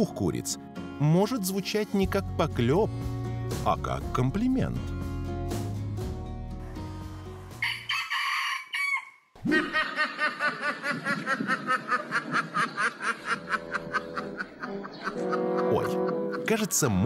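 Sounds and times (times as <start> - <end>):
rooster crowing: 7.6 - 9.3.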